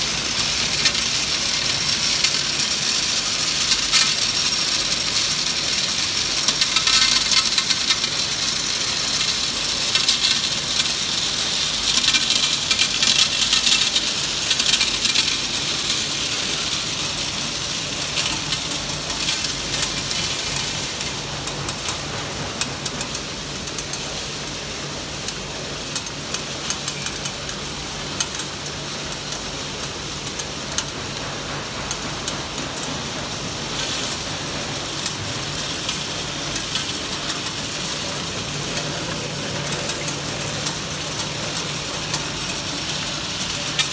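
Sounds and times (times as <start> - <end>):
hard candies rattling on disc: 0.0 - 24.2, 33.8 - 43.9.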